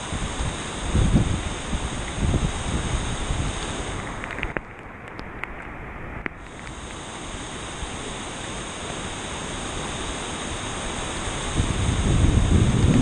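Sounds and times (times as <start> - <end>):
wind buffeting microphone: 0.0 - 4.6, 10.9 - 13.0
river rushing: 0.0 - 13.0.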